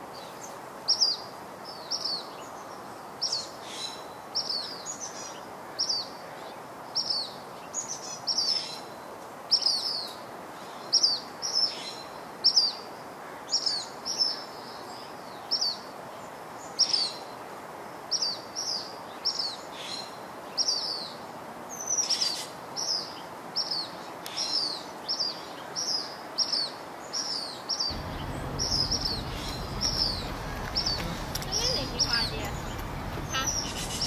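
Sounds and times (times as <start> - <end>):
steady outdoor hiss: 0.0 - 34.0
bird chirping: 18.1 - 34.0
low rumble: 27.9 - 34.0.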